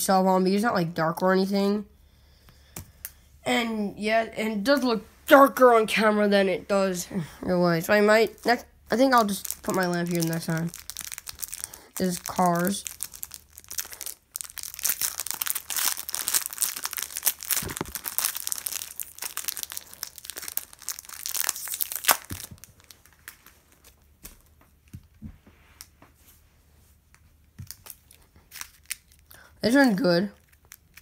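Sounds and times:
plastic wrapper crinkling: 8.3 - 25.1, 27.2 - 31.0.

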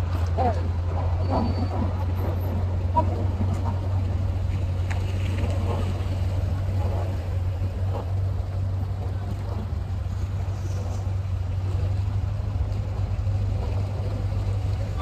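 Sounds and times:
car engines idling: 0.0 - 15.0.

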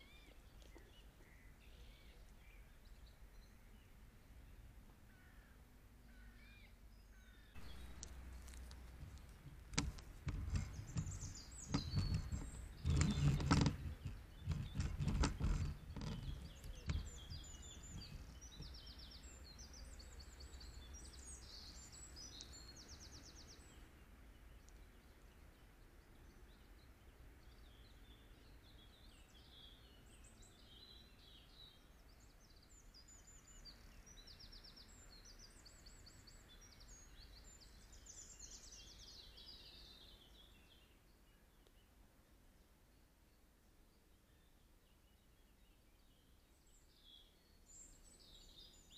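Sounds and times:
songbirds trilling and chirping: 0.0 - 48.9
loud rustling and crackling: 7.6 - 18.6.

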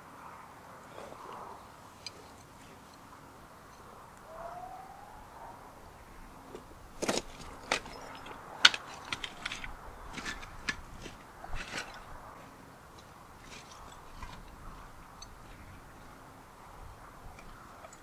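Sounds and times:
faint rising tone: 3.7 - 6.5
footsteps crunching on brick rubble: 6.5 - 14.9.

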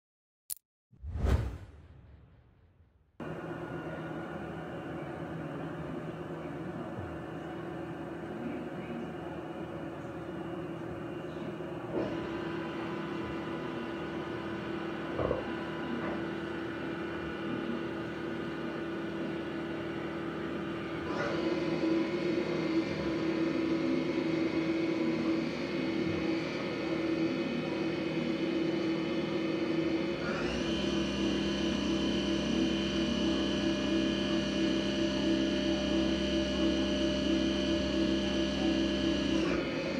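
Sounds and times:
milling machine whining: 3.2 - 39.9.

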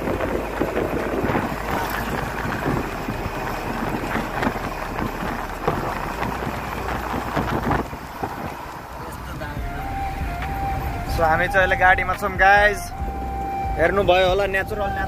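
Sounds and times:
bus knocks and rattles: 0.0 - 10.7
bus engine and road rumble: 0.0 - 15.0
wind buffeting microphone: 0.0 - 15.0.

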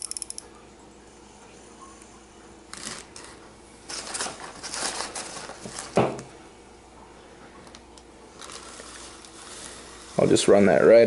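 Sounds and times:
fishing reel clicking: 0.0 - 0.4
bag rustling: 2.8 - 6.1, 8.4 - 10.0.

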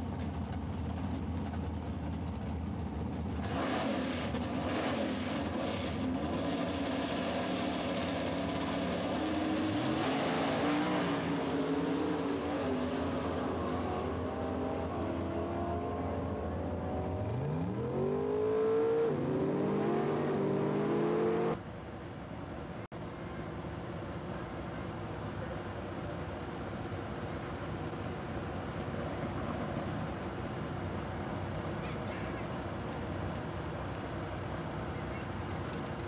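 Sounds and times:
drag car engine at full throttle: 0.0 - 21.6.

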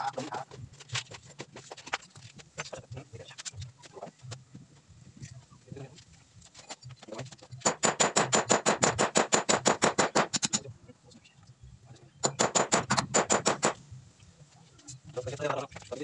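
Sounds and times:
hammer tapping on metal: 12.2 - 13.8.

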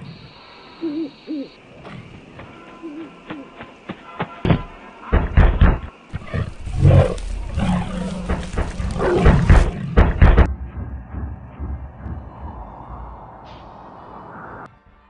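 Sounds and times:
lion roaring and snarling: 6.1 - 10.5.

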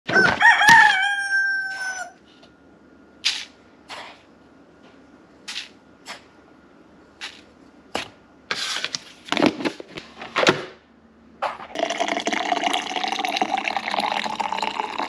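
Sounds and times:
rooster crowing: 0.1 - 2.2.

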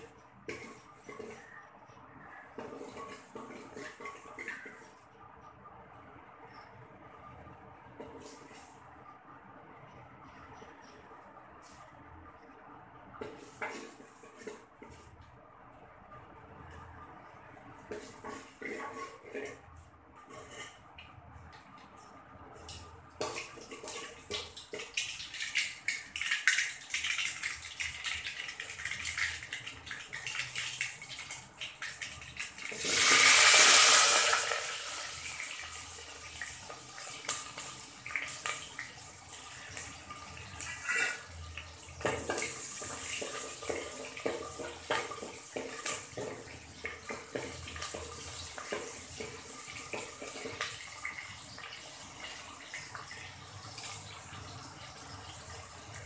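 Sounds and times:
loud sizzling hiss: 32.7 - 35.5.

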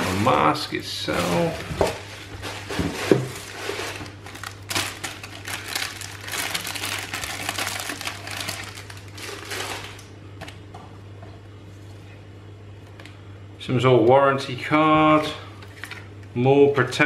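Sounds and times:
plastic bag crinkling: 3.2 - 10.1.

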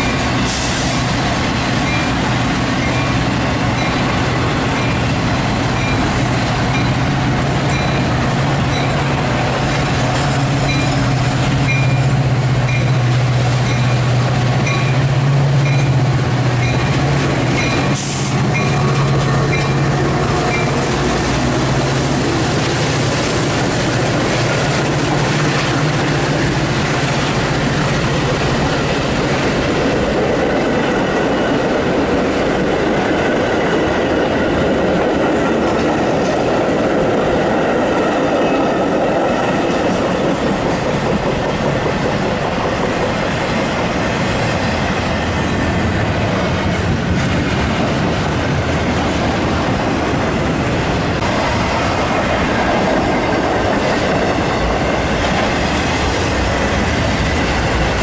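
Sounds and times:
diesel locomotive drone: 0.0 - 58.0
train wheels clattering: 0.0 - 58.0
train bell ringing: 1.8 - 20.9.

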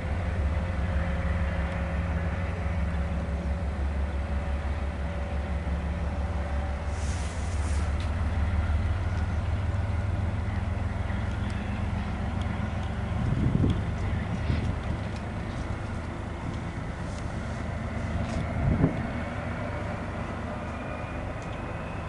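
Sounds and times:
diesel locomotive engine rumbling: 0.0 - 22.0
air hiss: 6.9 - 7.9.

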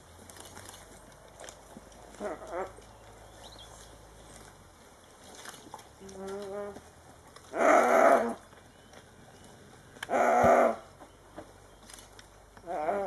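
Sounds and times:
antelope harsh bawls: 10.1 - 10.8.

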